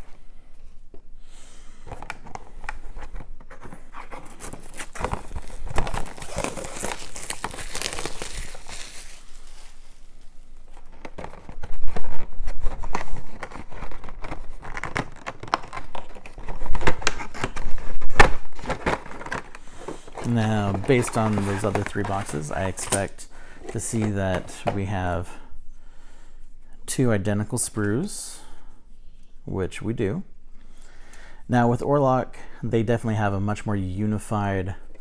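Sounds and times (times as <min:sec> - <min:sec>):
cardboard and plastic rustling: 0:01.8 - 0:25.0
plastic wrapping crinkling and tearing: 0:03.9 - 0:24.2.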